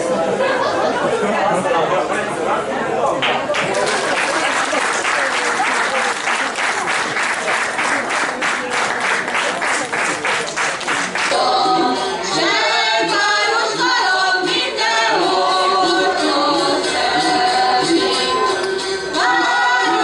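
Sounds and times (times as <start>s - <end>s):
audience clapping in time: 3.2s - 11.6s.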